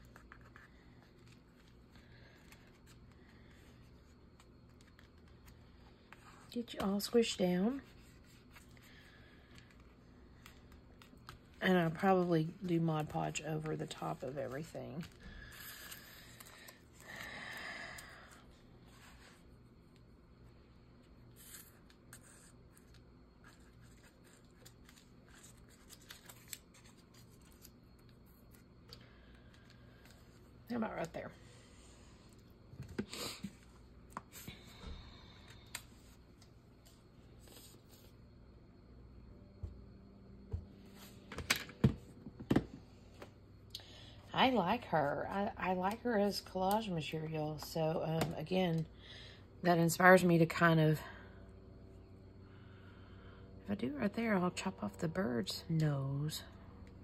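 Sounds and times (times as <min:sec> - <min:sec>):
low room hum: 0:00.0 - 0:57.0
paper rustling: 0:21.4 - 0:27.7.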